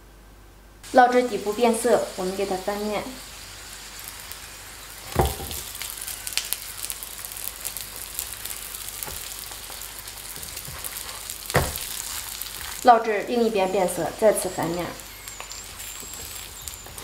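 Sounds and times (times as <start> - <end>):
oil sizzling and crackling: 0.8 - 17.0
thumps of food being turned: 5.1 - 5.7, 8.8 - 12.8.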